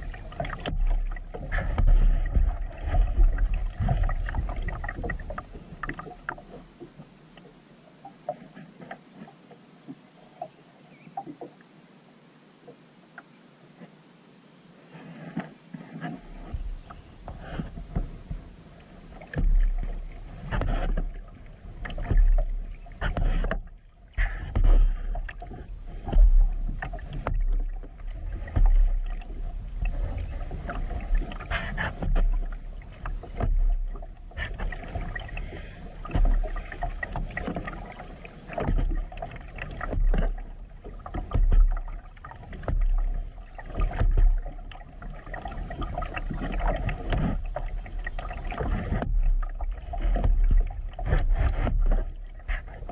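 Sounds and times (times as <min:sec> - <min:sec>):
kayak paddle splashing water: 0:00.0 - 0:11.6, 0:14.9 - 0:52.9.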